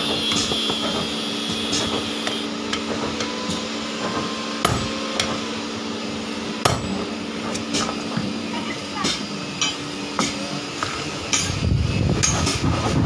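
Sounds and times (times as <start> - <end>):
hammer blows on anvil: 4.6 - 5.4, 6.6 - 8.0.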